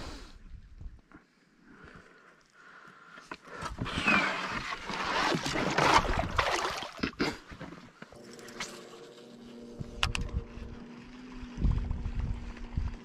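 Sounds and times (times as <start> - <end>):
rustling and splashing: 3.6 - 9.1.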